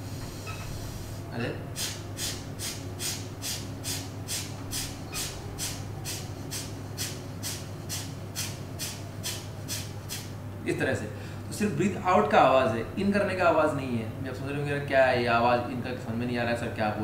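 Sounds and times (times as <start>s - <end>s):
low steady hum: 0.0s - 17.0s
forceful nasal exhalations: 1.8s - 10.4s.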